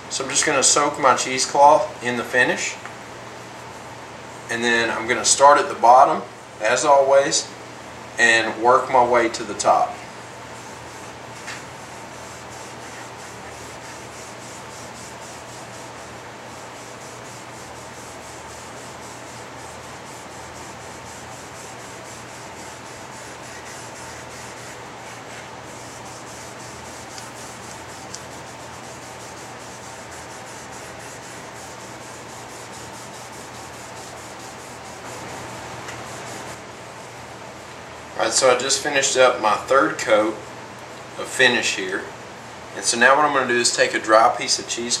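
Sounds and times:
cloth rubbing on wood: 9.7s - 36.6s.

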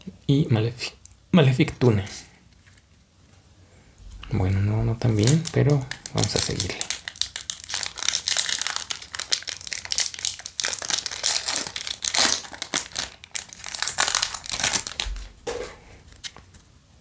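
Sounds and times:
foil wrapper crinkling and tearing: 5.0s - 15.3s.

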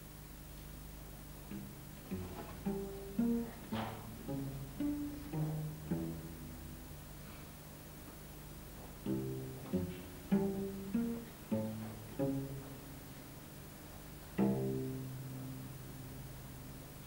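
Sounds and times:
cello low notes: 1.4s - 7.4s, 8.9s - 17.0s.

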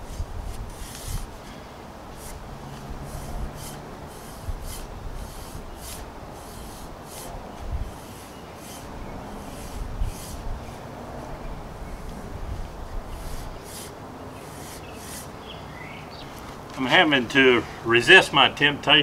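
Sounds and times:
metal rod scraping in wet soil: 0.0s - 1.3s, 2.2s - 2.4s, 3.0s - 10.8s, 13.1s - 15.3s.

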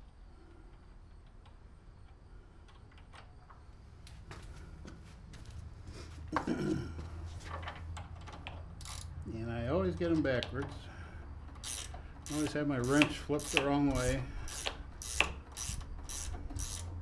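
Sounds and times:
wrench clinking on bolts: 11.5s - 16.9s.

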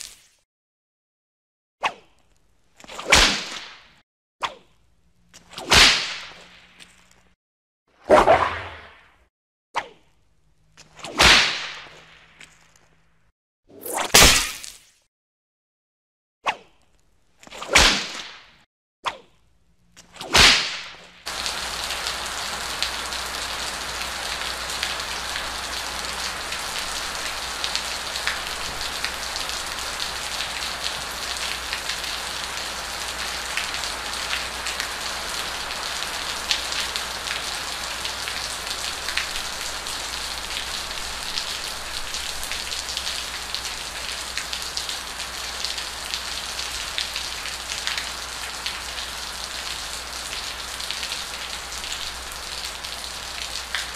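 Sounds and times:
ticks of raindrops: 20.8s - 53.9s
steady rain hiss: 21.3s - 53.9s.

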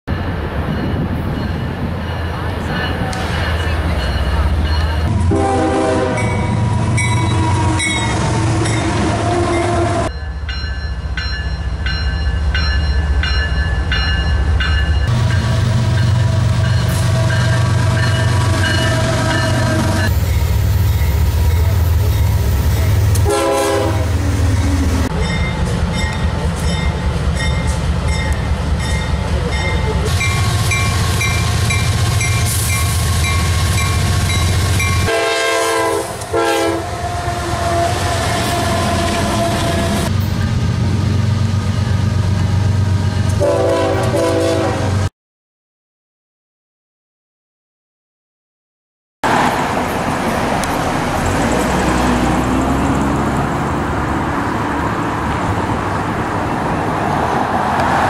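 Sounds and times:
railcar wheels clattering on rails: 0.1s - 9.0s, 10.1s - 36.7s
diesel locomotive engines running: 0.1s - 10.4s, 11.8s - 45.0s, 49.3s - 58.0s
train horns sounding: 4.3s - 10.1s, 15.1s - 25.1s, 29.3s - 40.1s, 43.2s - 45.1s.

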